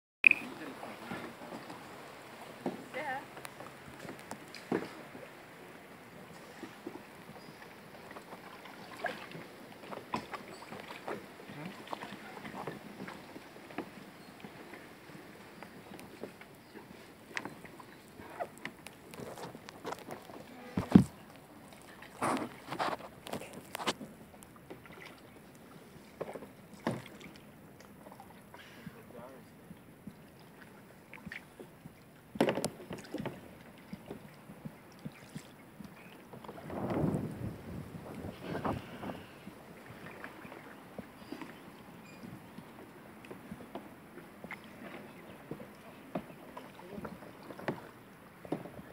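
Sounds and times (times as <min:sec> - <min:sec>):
water drips: 0:00.2 - 0:05.0
paddles splashing in water: 0:00.2 - 0:48.9.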